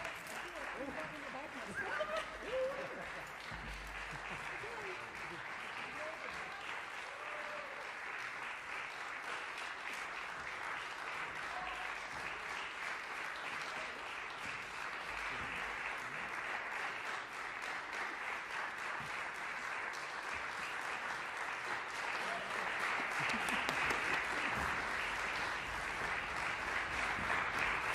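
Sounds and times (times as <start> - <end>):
audience applauding: 0.0 - 27.9.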